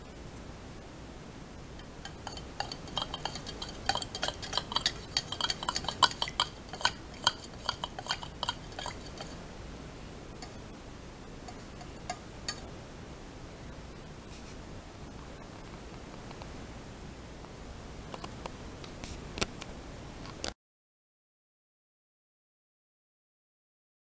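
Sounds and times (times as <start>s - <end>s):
stick clinking against cup: 1.8s - 9.4s.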